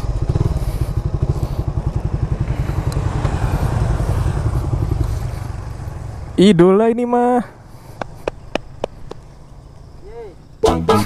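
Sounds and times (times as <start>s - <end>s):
motorcycle engine running at low revs: 0.0s - 6.5s.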